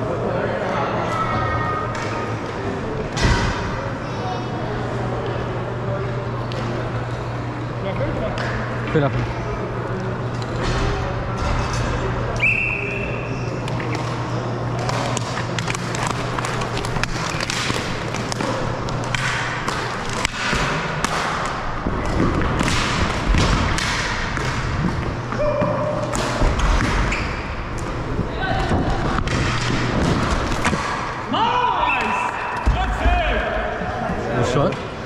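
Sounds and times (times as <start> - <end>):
steady low hum: 0.0 - 35.0
hockey sticks and ball clacking: 13.6 - 31.2.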